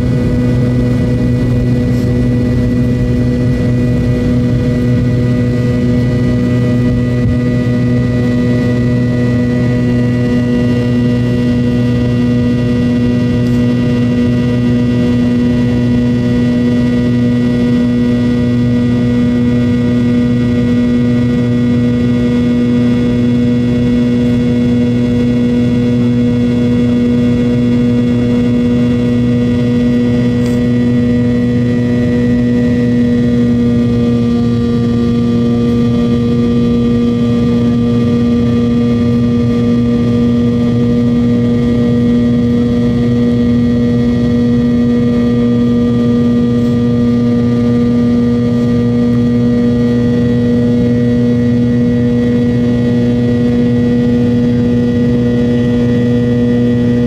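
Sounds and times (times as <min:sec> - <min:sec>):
jet engine cabin drone: 0:00.0 - 0:57.0.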